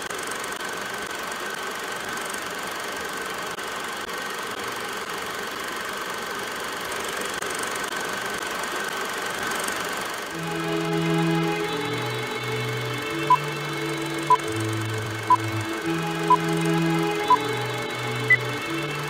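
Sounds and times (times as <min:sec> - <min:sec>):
high steady whine: 0:10.3 - 0:19.0.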